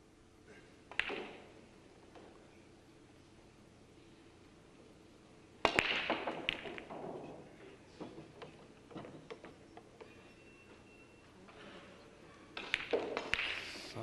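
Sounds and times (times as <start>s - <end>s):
pool balls clattering and clicking: 0.8s - 2.7s, 5.6s - 10.9s, 12.2s - 13.7s
cue ball cracking into rack: 0.9s - 1.5s, 5.7s - 7.3s, 12.6s - 13.6s.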